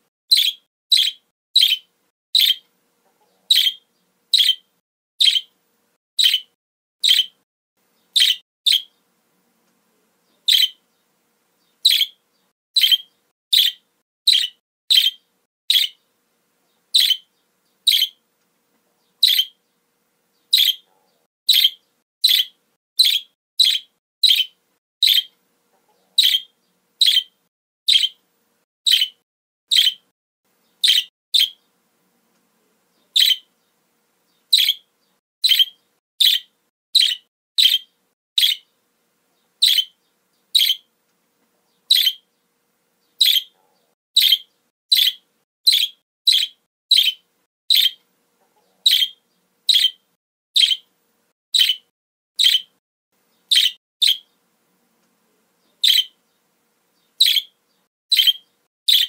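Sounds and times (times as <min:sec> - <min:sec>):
budgerigar chirping: 0:00.3 - 0:02.6, 0:03.3 - 0:05.5, 0:06.2 - 0:07.4, 0:08.1 - 0:09.0, 0:10.4 - 0:10.8, 0:11.7 - 0:12.2, 0:12.8 - 0:16.0, 0:16.9 - 0:17.3, 0:17.9 - 0:18.2, 0:19.2 - 0:19.6, 0:20.5 - 0:28.2, 0:28.9 - 0:30.1, 0:30.8 - 0:31.6, 0:33.0 - 0:33.5, 0:34.4 - 0:38.7, 0:39.6 - 0:40.9, 0:41.8 - 0:42.3, 0:43.2 - 0:48.0, 0:48.6 - 0:50.0, 0:50.6 - 0:50.9, 0:51.5 - 0:52.8, 0:53.5 - 0:54.3, 0:55.8 - 0:56.2, 0:57.1 - 0:59.0.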